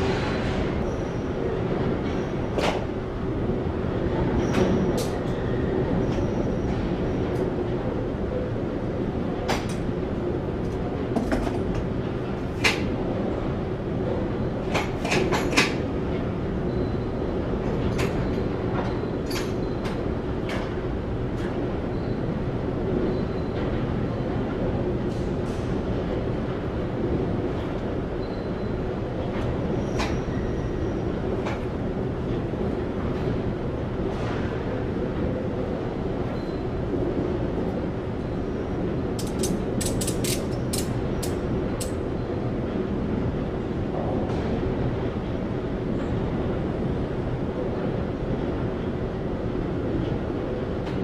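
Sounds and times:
metallic clicks and knocks: 0:39.2 - 0:42.0.

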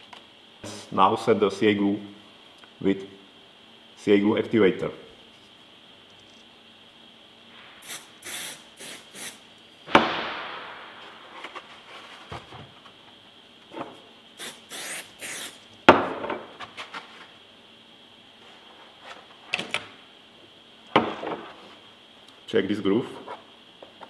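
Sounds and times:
aerosol spray hisses: 0:07.8 - 0:09.4, 0:14.4 - 0:15.6.

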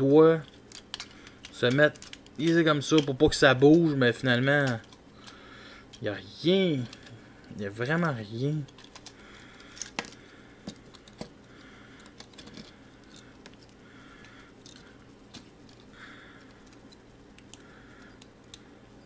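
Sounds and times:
plastic toy parts clicking: 0:00.4 - 0:03.9, 0:04.5 - 0:06.0, 0:08.0 - 0:11.4, 0:12.0 - 0:18.6.

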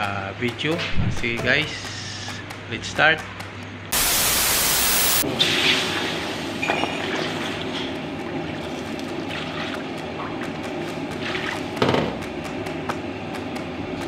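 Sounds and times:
burst of static: 0:03.9 - 0:05.2.

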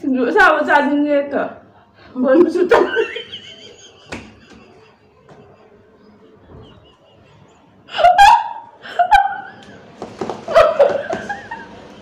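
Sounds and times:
women laughing hard: 0:02.7 - 0:12.0.

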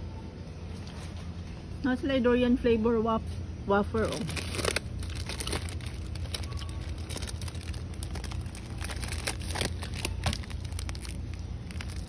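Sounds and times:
supermarket background hum: 0:00.0 - 0:12.0
plastic package crinkling: 0:04.0 - 0:12.0.

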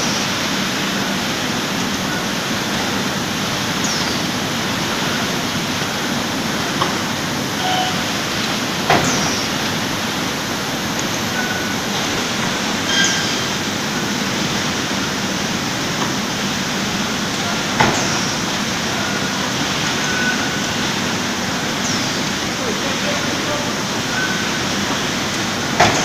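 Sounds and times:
packing line machinery running: 0:00.0 - 0:26.0.

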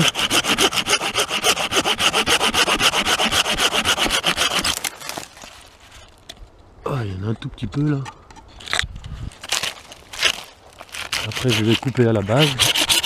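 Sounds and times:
hand saw cutting branch: 0:00.0 - 0:05.5, 0:10.2 - 0:13.0.

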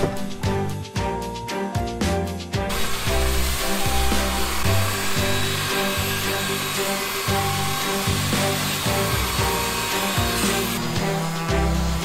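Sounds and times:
background music with bass line: 0:00.0 - 0:12.0
belt sander grinding wood: 0:02.7 - 0:12.0.

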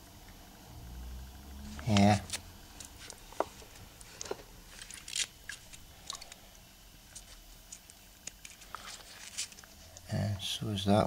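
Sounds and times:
plastic crinkling and rustling: 0:01.8 - 0:06.4, 0:07.1 - 0:09.8.

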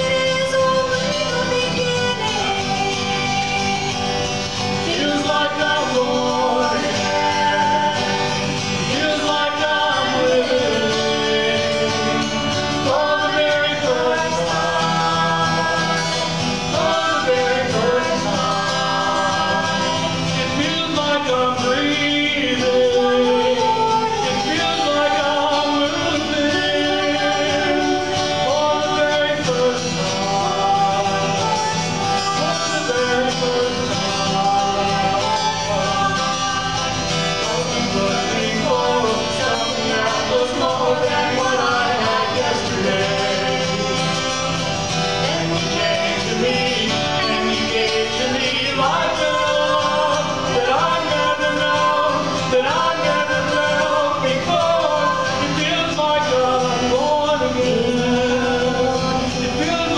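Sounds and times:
woman singing: 0:00.0 - 0:44.5
acoustic guitar strumming: 0:00.0 - 0:59.9.

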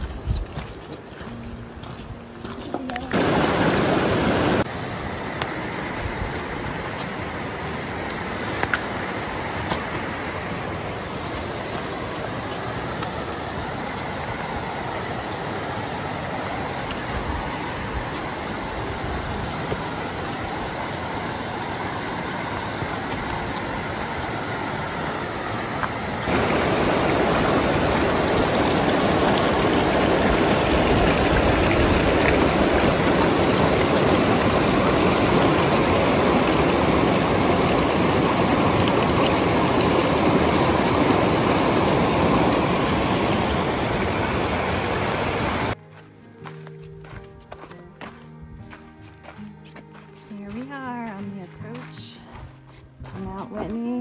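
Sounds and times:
flowing water: 0:02.9 - 0:45.8.

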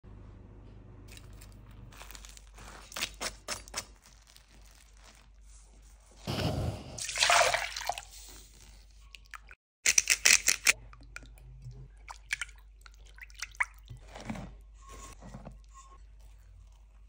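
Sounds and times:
water pouring into a bowl: 0:07.0 - 0:08.1.

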